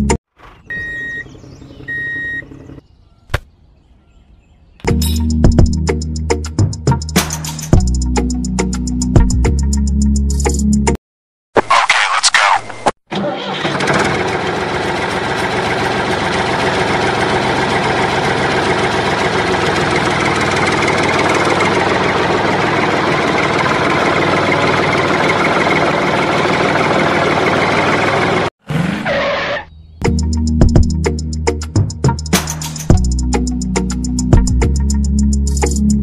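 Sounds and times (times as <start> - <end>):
music: 4.9 - 11.0, 30.0 - 36.0.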